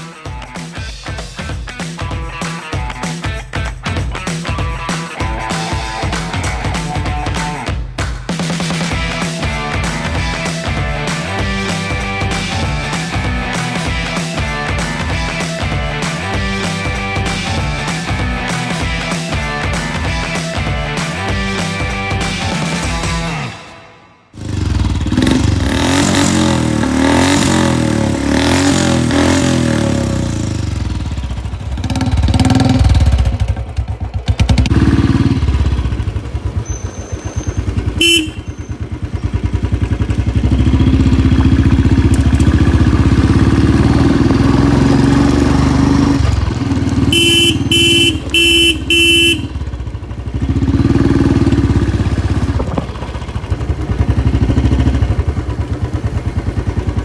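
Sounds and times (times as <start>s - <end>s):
motorcycle engine running: 24.4s - 57.0s
horn beeping: 36.6s - 38.9s, 47.0s - 49.8s.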